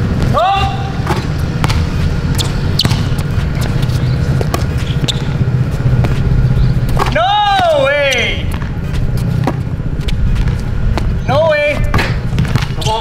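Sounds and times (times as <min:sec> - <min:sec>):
steady low rumble: 0:00.0 - 0:13.0
basketball bouncing: 0:00.1 - 0:09.8, 0:10.4 - 0:11.2, 0:11.8 - 0:13.0.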